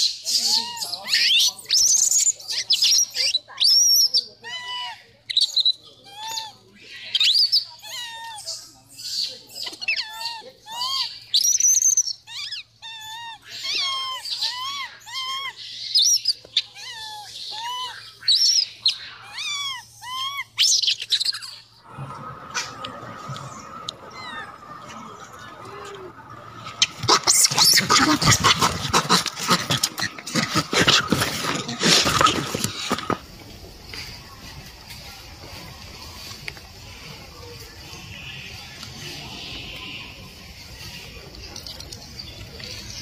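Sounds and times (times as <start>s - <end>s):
infant monkey coo calls: 0.0s - 33.2s.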